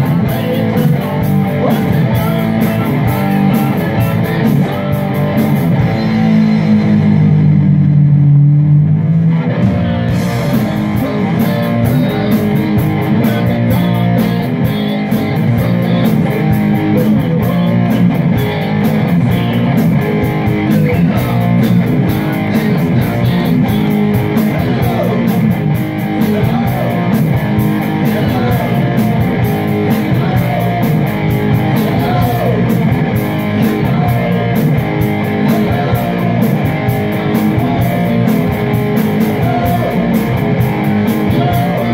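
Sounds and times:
bass guitar: 0:00.0 - 0:41.9
drum kit: 0:00.0 - 0:41.9
electric guitars: 0:00.0 - 0:41.9.

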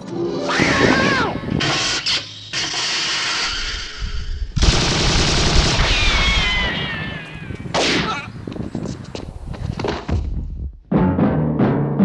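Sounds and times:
falling whine: 0:00.0 - 0:07.8
gunshots: 0:04.6 - 0:08.3.

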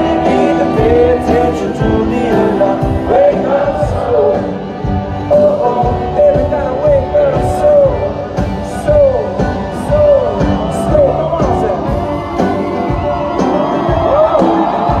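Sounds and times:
live pop-rock band playing: 0:00.0 - 0:15.0.

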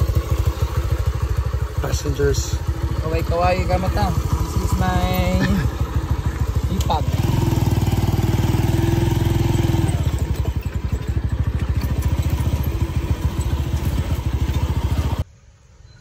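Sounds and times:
small motorcycle engine running: 0:00.0 - 0:15.2.

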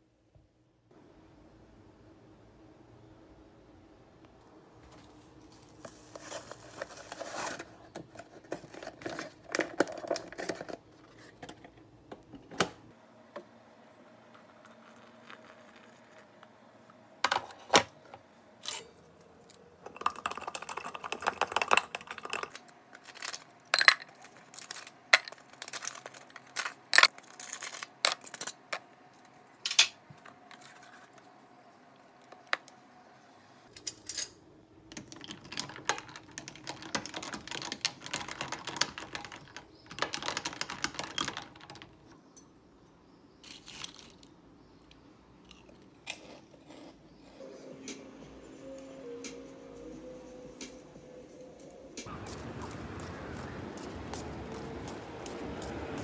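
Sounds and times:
paper packet rustling: 0:04.9 - 0:11.5, 0:24.2 - 0:28.7.

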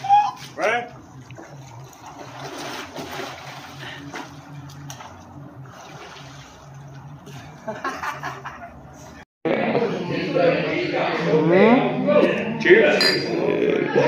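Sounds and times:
pool water splashing: 0:00.0 - 0:08.9
low hum: 0:00.9 - 0:14.0.

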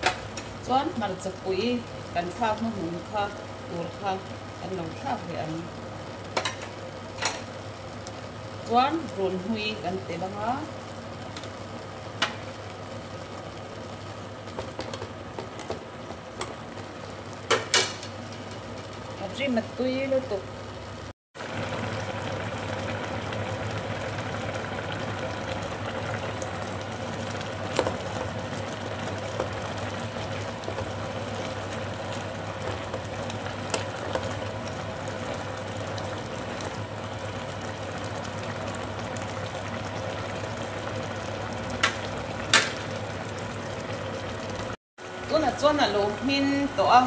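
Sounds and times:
induction cooktop hum: 0:00.0 - 0:47.0
soup bubbling in pot: 0:10.7 - 0:19.2, 0:20.4 - 0:45.2.

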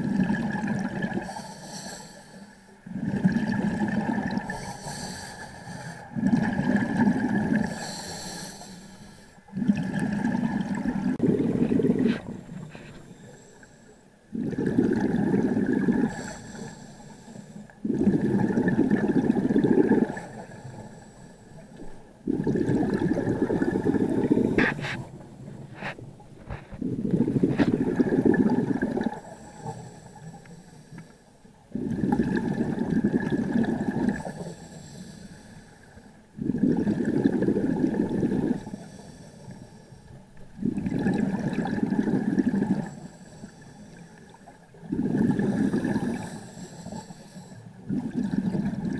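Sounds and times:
diver exhaling bubbles: 0:00.0 - 0:01.5, 0:02.8 - 0:04.8, 0:05.9 - 0:08.4, 0:09.5 - 0:13.2, 0:14.3 - 0:16.4, 0:17.8 - 0:20.8, 0:21.8 - 0:29.8, 0:31.7 - 0:34.5, 0:36.4 - 0:38.8, 0:40.4 - 0:43.0, 0:44.7 - 0:47.0, 0:47.8 - 0:48.9
regulator inhale hiss: 0:01.2 - 0:02.8, 0:04.5 - 0:06.1, 0:07.7 - 0:09.4, 0:12.6 - 0:14.1, 0:16.1 - 0:17.7, 0:20.5 - 0:21.6, 0:29.2 - 0:31.4, 0:34.2 - 0:36.1, 0:38.6 - 0:40.2, 0:42.8 - 0:44.4, 0:45.9 - 0:47.8.

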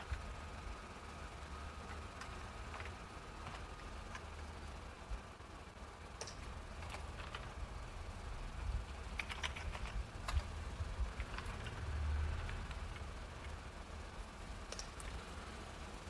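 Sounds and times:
low hum: 0:00.0 - 0:16.0
keyboard key clicks: 0:09.1 - 0:10.5.

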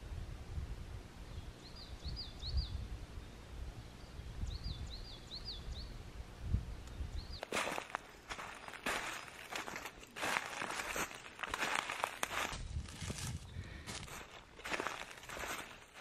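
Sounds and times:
songbird singing: 0:01.2 - 0:16.0
footsteps crunching dry leaves: 0:07.4 - 0:16.0
wind rumble: 0:11.0 - 0:15.7.

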